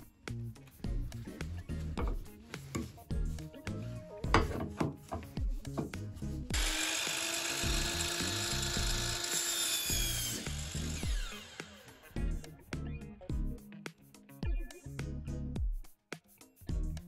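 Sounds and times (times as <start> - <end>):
saw blade spinning down: 6.5 - 12.1
miter saw cutting wood: 6.5 - 12.2.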